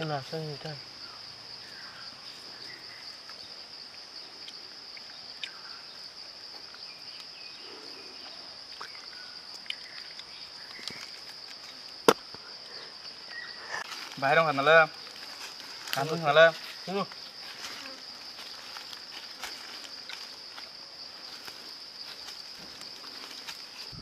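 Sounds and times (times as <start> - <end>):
insects droning: 0.0 - 24.0
faint ticks: 3.2 - 5.7.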